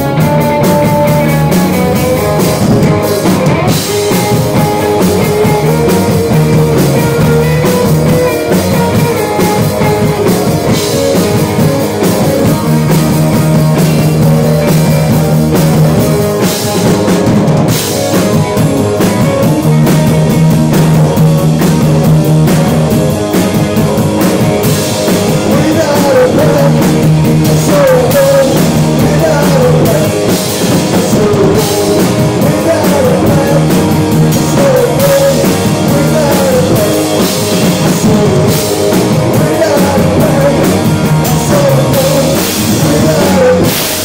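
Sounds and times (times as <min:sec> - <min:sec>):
person singing: 0:00.0 - 0:15.5, 0:24.9 - 0:44.0
bass guitar: 0:00.0 - 0:44.0
drum kit: 0:00.0 - 0:44.0
electric guitars: 0:00.0 - 0:44.0.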